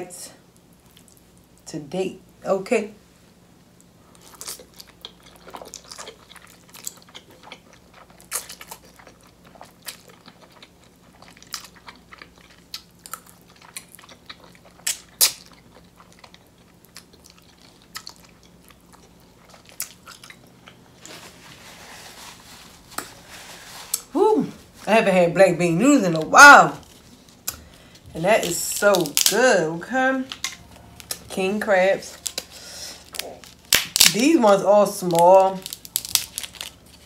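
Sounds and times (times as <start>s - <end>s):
chewing noodles: 4.1s - 21.4s.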